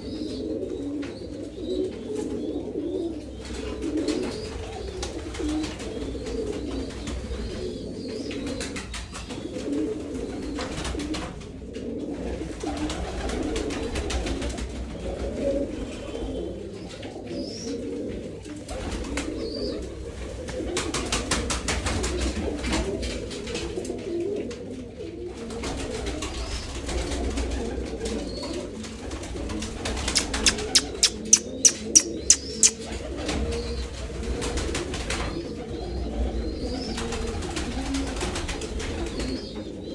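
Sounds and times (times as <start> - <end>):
pigeons cooing: 0.0 - 39.9
sharp claps: 30.2 - 32.8
soft clicks: 30.2 - 32.8.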